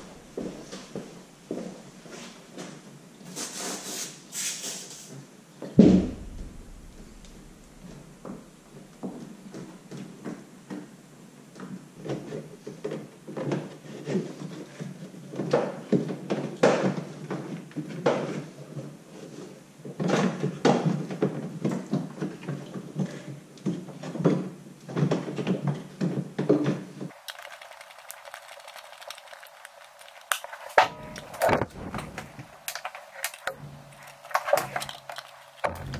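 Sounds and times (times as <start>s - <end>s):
knocks clicks and rattles of handling: 27.1s - 35.9s.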